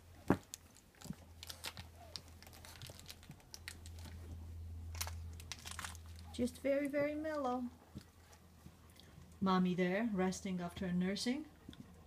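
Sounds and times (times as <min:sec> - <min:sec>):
puppies rustling and crinkling: 0:00.0 - 0:09.4
low steady hum: 0:00.0 - 0:12.0.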